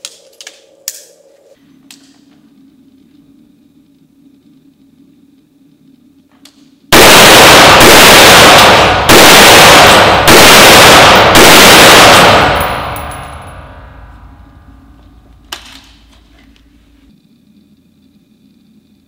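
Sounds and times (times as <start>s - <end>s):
rifle shots echoing indoors: 6.9s - 17.0s.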